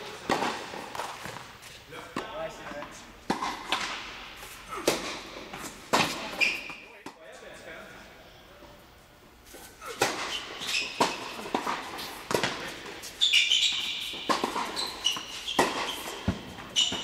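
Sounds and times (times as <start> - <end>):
shoes squeaking on court: 0.0 - 7.0, 9.4 - 17.0
tennis ball bouncing on hard court: 0.2 - 1.4, 2.7 - 4.2, 9.9 - 17.0
tennis racket hits: 9.8 - 17.0.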